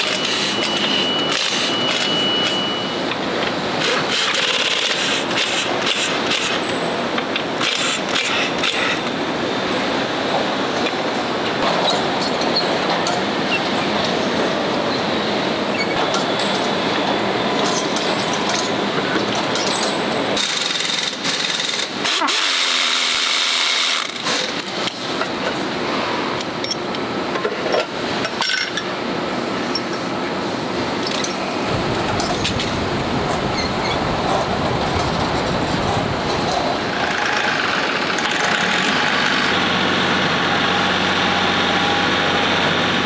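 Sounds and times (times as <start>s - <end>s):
factory machinery noise: 0.0s - 43.0s
pneumatic impact wrench rattling: 3.8s - 9.1s, 19.5s - 25.1s
factory din: 30.0s - 43.0s.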